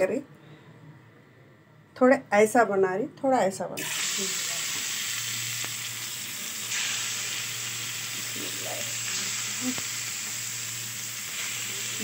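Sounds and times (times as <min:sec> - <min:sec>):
fish sizzling in oil: 0:03.8 - 0:12.0.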